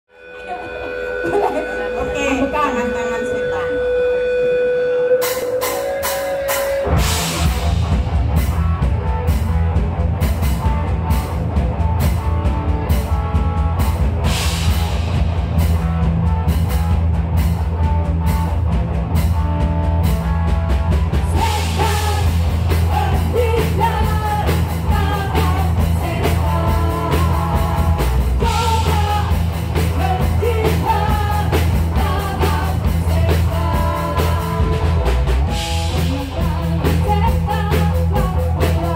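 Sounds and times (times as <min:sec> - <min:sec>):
melody line: 0:00.1 - 0:07.0
live rock band playing: 0:00.1 - 0:38.9.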